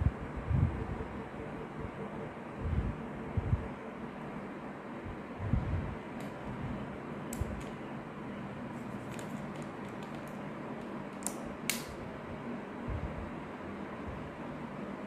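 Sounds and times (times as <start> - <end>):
room hiss and low hum: 0.0 - 15.0
small items clicking: 9.0 - 11.9.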